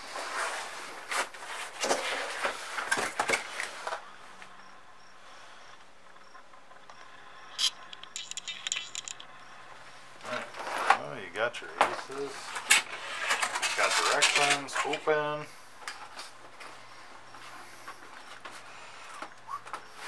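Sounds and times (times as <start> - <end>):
cardboard box rustling and scraping: 0.0 - 4.0
sharp clicks: 6.8 - 9.3.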